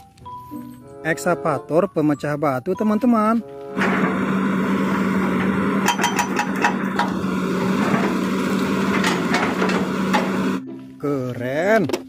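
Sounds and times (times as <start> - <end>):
small motor humming: 3.8 - 10.6.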